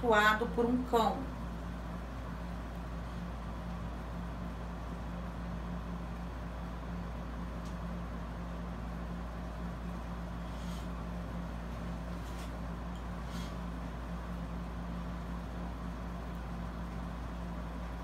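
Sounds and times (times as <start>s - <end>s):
room hum: 0.0s - 18.0s.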